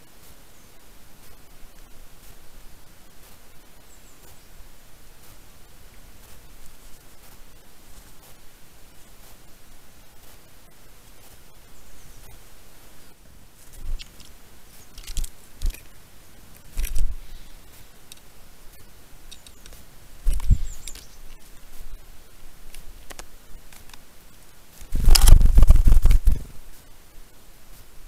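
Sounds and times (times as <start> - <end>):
knocks and scrapes on microphone: 20.3 - 20.8, 24.9 - 26.6.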